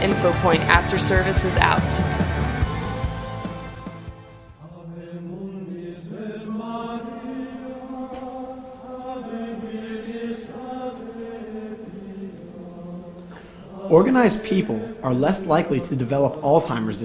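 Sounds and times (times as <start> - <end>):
low droning chant: 4.6 - 17.0.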